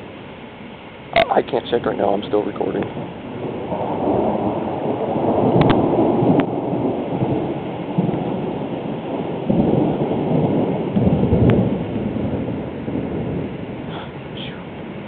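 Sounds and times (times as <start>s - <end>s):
steady rain: 0.0s - 15.0s
thunder rumbling: 0.0s - 15.0s.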